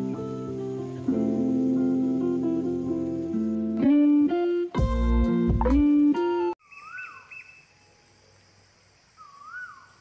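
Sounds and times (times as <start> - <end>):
plucked guitar music: 0.0 - 6.6.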